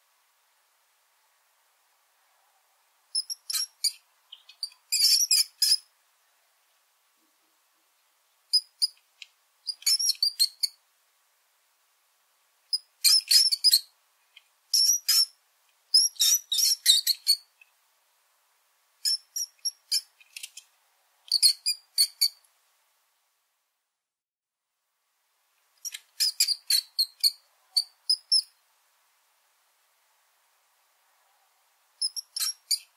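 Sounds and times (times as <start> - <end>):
mouse squeaking: 3.2 - 5.9, 8.5 - 9.0, 9.7 - 10.8, 12.7 - 13.9, 14.7 - 17.5, 19.0 - 20.6, 21.3 - 22.4, 25.8 - 28.5, 32.0 - 32.9.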